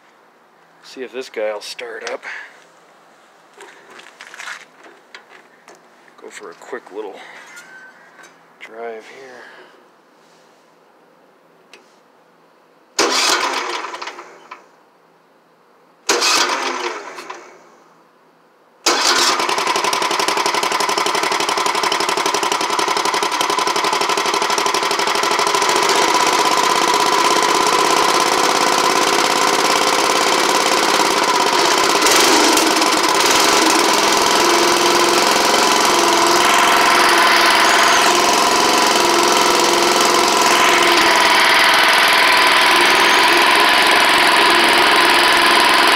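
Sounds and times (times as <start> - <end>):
engine cranking: 13.0 - 14.2, 16.1 - 17.4, 18.9 - 45.9
tractor engine running: 18.9 - 45.9.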